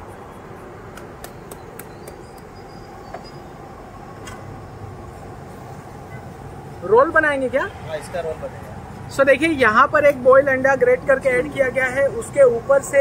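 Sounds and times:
steady background noise: 0.0s - 13.0s.

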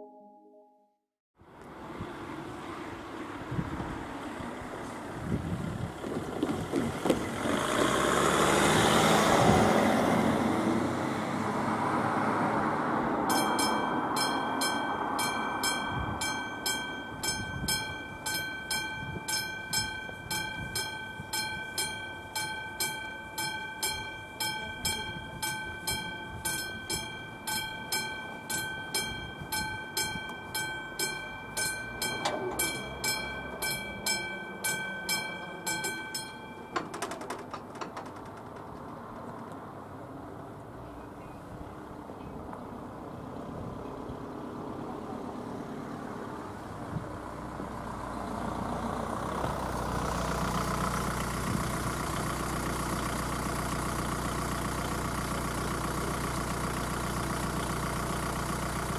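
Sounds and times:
car driving past: 6.2s - 16.5s
level-crossing warning bell ringing: 13.2s - 37.3s.

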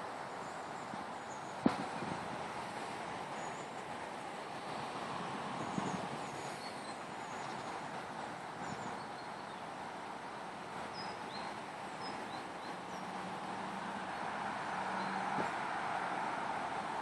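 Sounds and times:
outdoor background rush: 0.0s - 17.0s
small birds chirping: 5.6s - 7.9s, 10.8s - 13.2s.

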